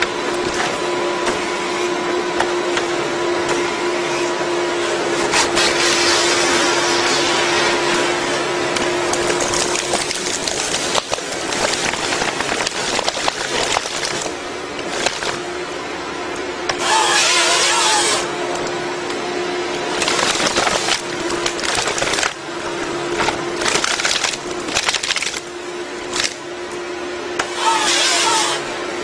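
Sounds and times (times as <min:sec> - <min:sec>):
harvester engine and hydraulic hum: 0:00.0 - 0:29.0
branches cracking and splintering: 0:09.1 - 0:15.4, 0:19.9 - 0:22.4, 0:23.2 - 0:25.5, 0:26.1 - 0:26.4.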